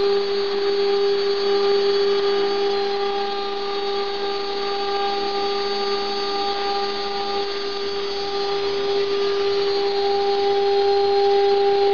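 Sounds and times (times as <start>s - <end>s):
router spindle whining: 0.0s - 11.9s.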